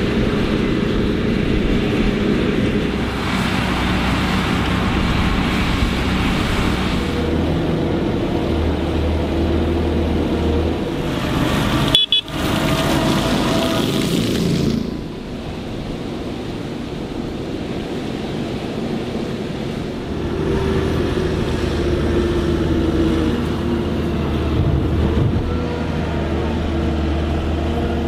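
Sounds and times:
tractor driving by: 0.0s - 17.8s
tractor diesel engines under load: 0.0s - 28.0s.

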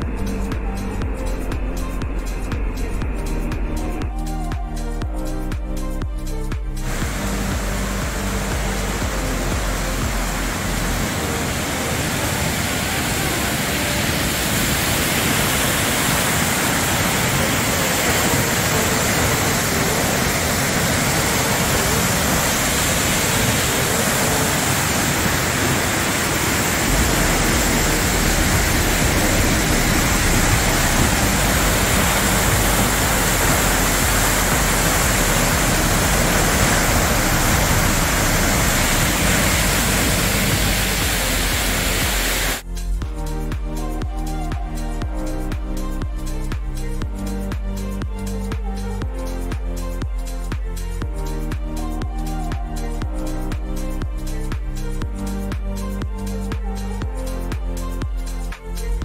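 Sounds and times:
deep low rumble: 0.0s - 11.2s, 26.8s - 57.3s
waterfall roaring: 6.8s - 42.6s.

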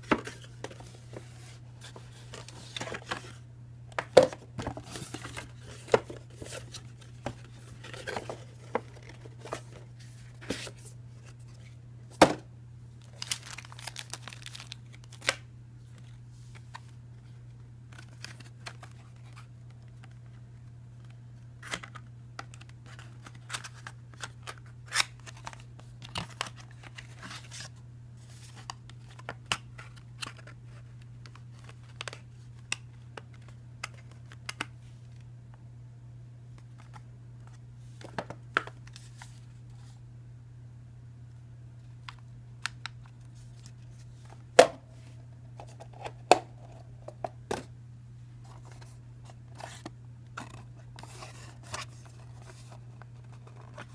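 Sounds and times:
steady low hum: 0.0s - 53.9s
packaging rustling and tearing: 13.0s - 15.4s.

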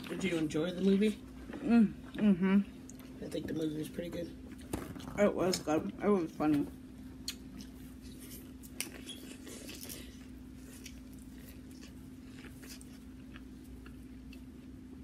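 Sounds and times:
steady low hum: 0.0s - 15.0s
person chewing corn: 7.2s - 15.0s.

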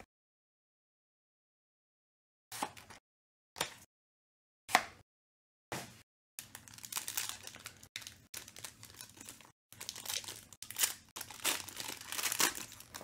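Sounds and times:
foil wrapper crinkling and tearing: 6.4s - 13.0s.

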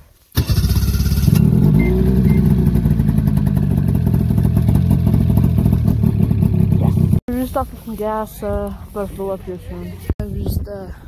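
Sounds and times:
snowmobile engine running: 0.6s - 7.2s.

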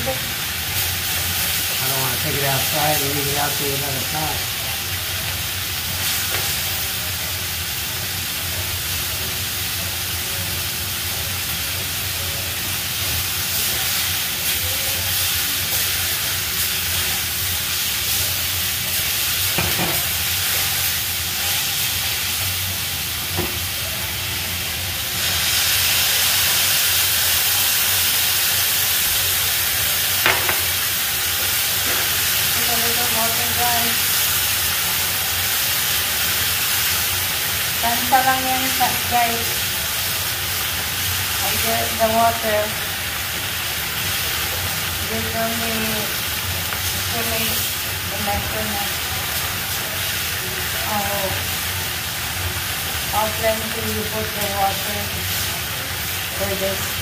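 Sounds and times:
vegetables sizzling in a frying pan: 0.0s - 57.0s
spatula tapping a pan: 30.2s - 30.7s.

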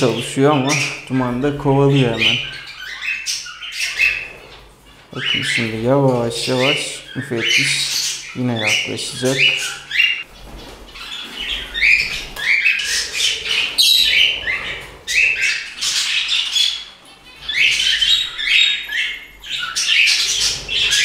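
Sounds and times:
birds squawking and chirping: 0.0s - 21.0s.

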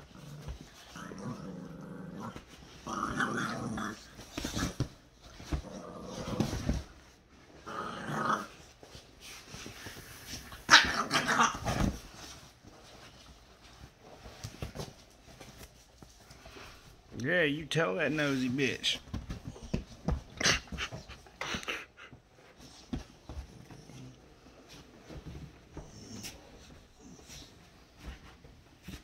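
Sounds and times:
dog growling: 0.0s - 6.8s, 7.6s - 8.6s.

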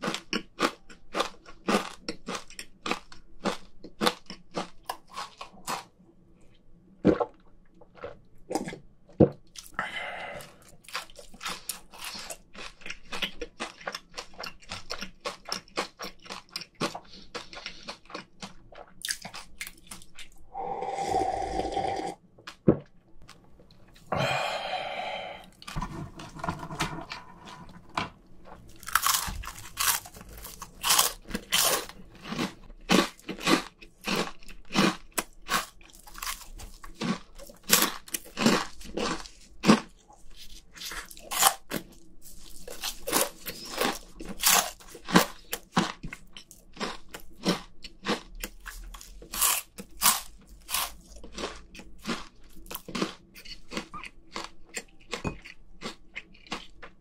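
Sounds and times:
crunching and chewing corn puffs: 0.0s - 20.4s, 24.7s - 57.0s
person swallowing beer: 20.4s - 22.2s, 24.0s - 25.6s.

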